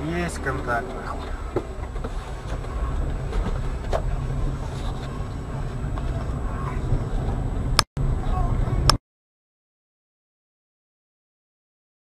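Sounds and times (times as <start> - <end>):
vehicle rumble: 0.0 - 9.0.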